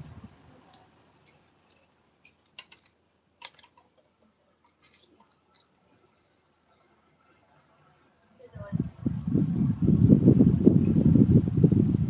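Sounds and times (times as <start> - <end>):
faint clicks and taps: 0.7 - 5.8.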